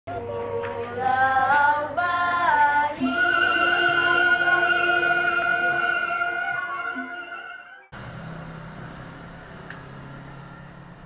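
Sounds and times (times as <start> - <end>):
slow high melody: 3.0 - 7.9.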